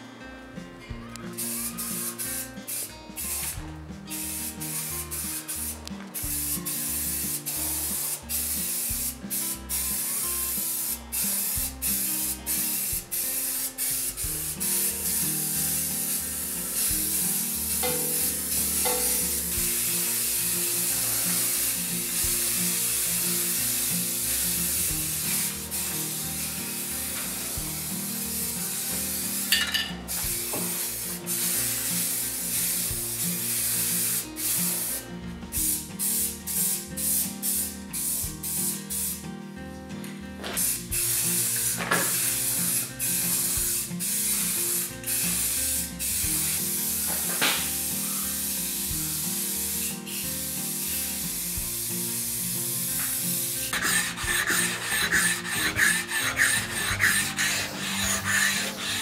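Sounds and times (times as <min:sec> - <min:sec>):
background music: 0:00.0 - 0:59.0
spray paint cans hissing: 0:00.8 - 0:39.2, 0:40.0 - 0:59.0.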